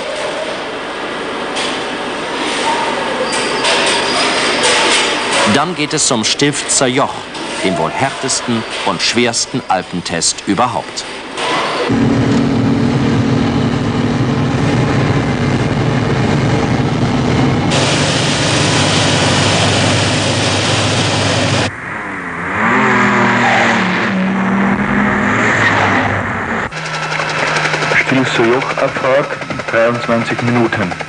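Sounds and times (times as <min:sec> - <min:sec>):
car engine revving: 0:11.9 - 0:30.7.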